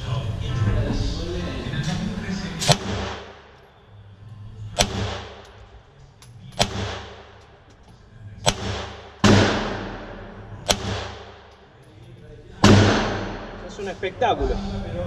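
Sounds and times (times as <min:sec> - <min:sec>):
pistol shots with ringing tail: 0:02.7 - 0:03.6, 0:04.8 - 0:05.6, 0:06.5 - 0:07.6, 0:08.4 - 0:11.6, 0:12.6 - 0:13.6.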